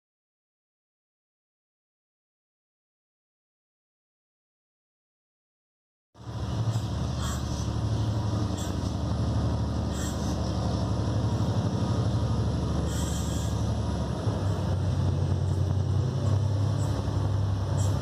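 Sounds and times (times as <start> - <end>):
diesel locomotive engines droning: 6.2 - 18.0.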